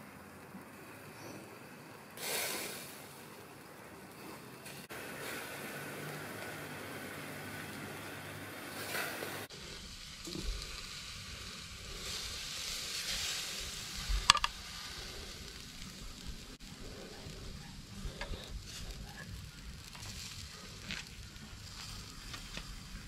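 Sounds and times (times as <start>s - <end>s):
steak sizzling on grill: 8.7s - 23.0s.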